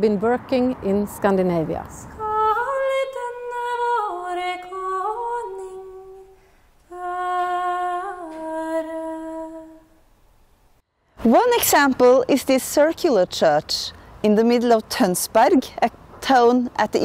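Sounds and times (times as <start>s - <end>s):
woman singing unaccompanied: 2.1s - 10.0s.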